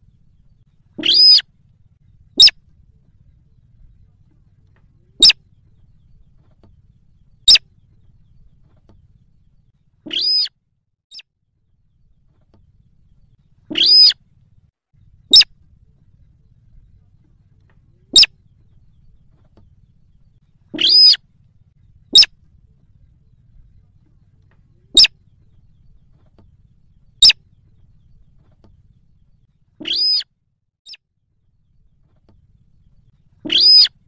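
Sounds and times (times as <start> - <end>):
bird calling: 0.0 - 10.5, 12.6 - 14.2, 15.1 - 15.6, 18.0 - 21.2, 21.8 - 30.3, 32.4 - 34.0.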